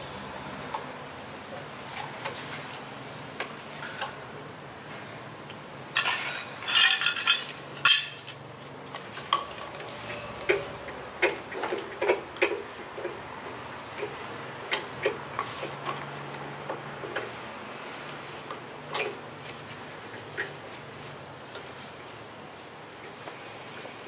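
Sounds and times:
metal clinking and rattling: 6.0 - 8.4.

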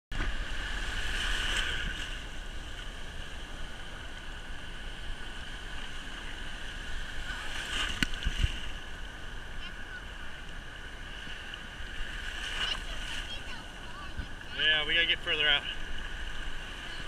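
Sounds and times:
waves breaking: 0.1 - 17.0
ocean surf rushing: 0.2 - 17.0
wind noise on microphone: 7.4 - 8.7.

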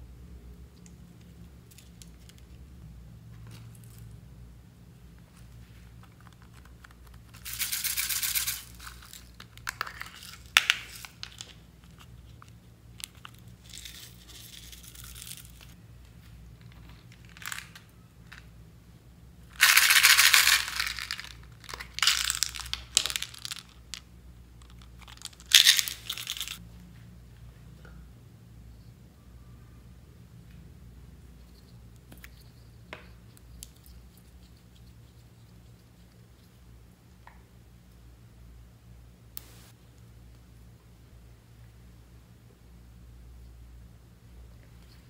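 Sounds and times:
plastic beads rattling: 7.2 - 11.6, 13.0 - 15.8, 16.8 - 18.5, 19.5 - 24.0, 24.6 - 26.6.

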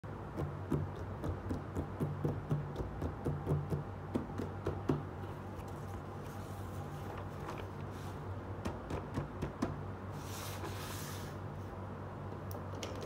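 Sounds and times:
fingers tapping cardboard box: 0.2 - 5.1.

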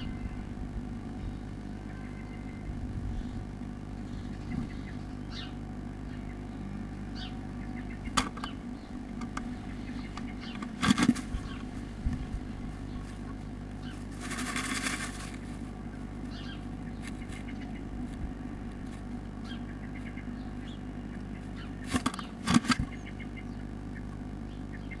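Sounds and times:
steady low hum: 0.0 - 25.0
wing flutters: 8.0 - 20.2, 21.4 - 23.1
bird knocking and scrabbling in box: 10.6 - 11.3, 14.2 - 15.4, 21.9 - 22.9
nest material rustling: 10.7 - 16.3.

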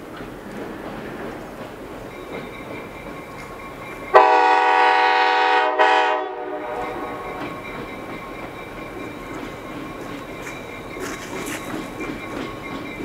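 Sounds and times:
train rumble: 0.0 - 13.0
locomotive air horn blast: 4.1 - 7.2.

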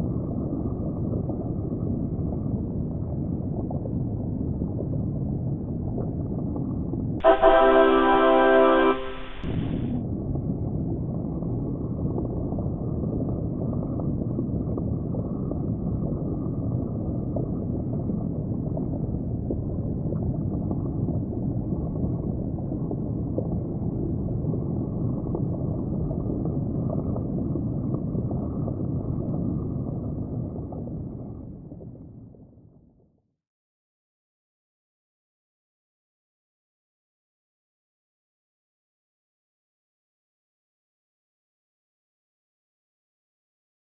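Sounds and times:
underwater rushing and gurgling water: 0.0 - 32.6.

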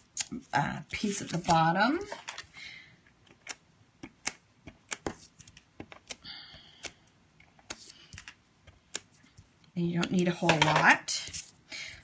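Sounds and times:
paper pieces clicking and tapping: 3.3 - 9.5.

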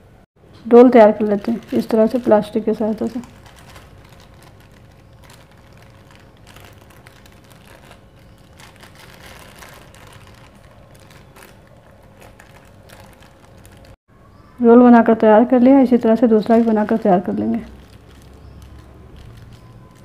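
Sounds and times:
plastic sheet crinkling: 1.0 - 14.0, 16.0 - 20.0.

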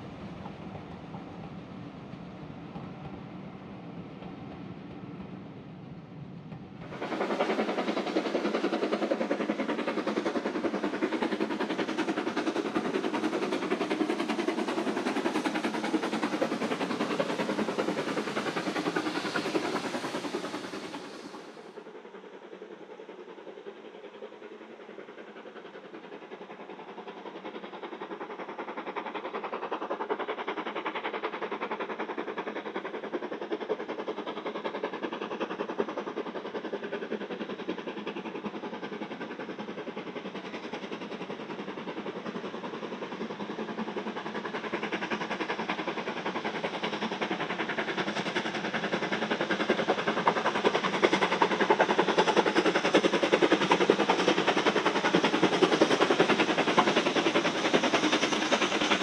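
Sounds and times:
distant train: 0.0 - 59.0
steam locomotive exhaust beats: 0.0 - 59.0.

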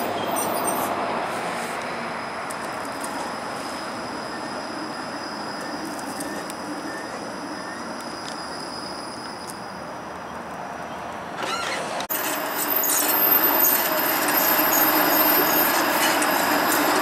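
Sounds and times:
wavering wheel squeal: 0.0 - 1.0, 3.0 - 10.0, 10.9 - 17.0
street and vehicle noise: 0.0 - 17.0
streetcar rolling on track: 0.0 - 17.0.

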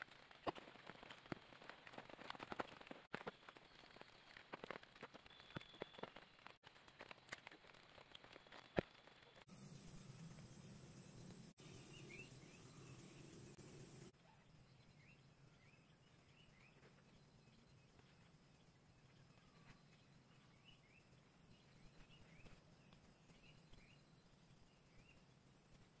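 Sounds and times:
small birds chirping: 8.4 - 26.0
high insect drone: 9.5 - 14.1.

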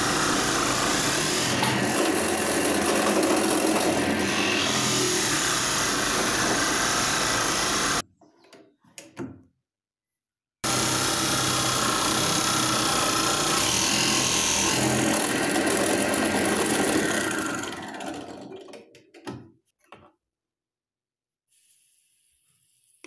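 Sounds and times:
drill press boring wood: 0.0 - 8.0, 10.6 - 18.8.

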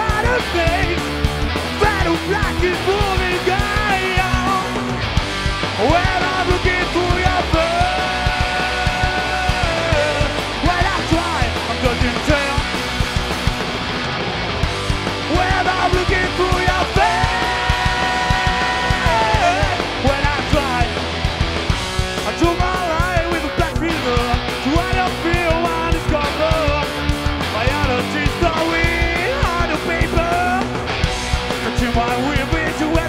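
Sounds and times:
drums: 0.0 - 33.0
electric guitar: 0.0 - 33.0
rock band playing live: 0.0 - 33.0
person singing: 1.8 - 4.8, 5.8 - 12.6, 15.3 - 20.9.

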